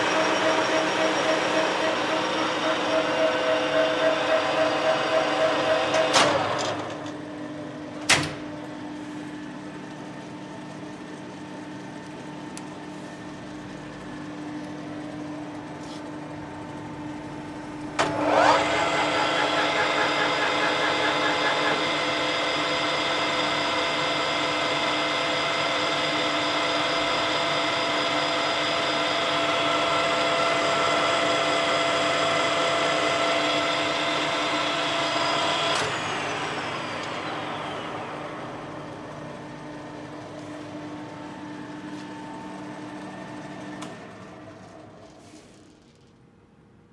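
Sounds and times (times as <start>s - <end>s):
lathe spindle whine: 0.0s - 7.1s, 9.9s - 45.1s
low machine hum: 0.0s - 46.1s.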